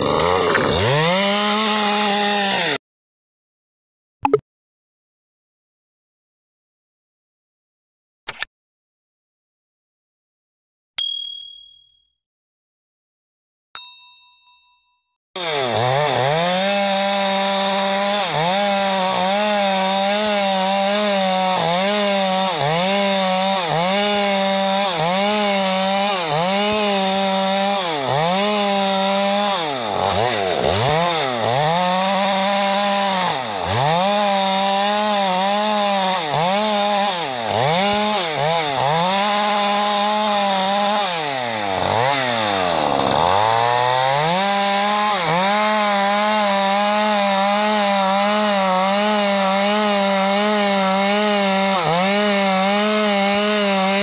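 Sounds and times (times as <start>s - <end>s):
chainsaw ripping a log: 0.0s - 2.8s, 15.4s - 54.0s.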